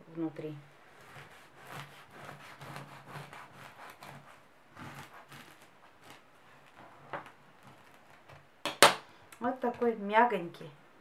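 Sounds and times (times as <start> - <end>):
knife sawing through bread crust: 0.8 - 8.4.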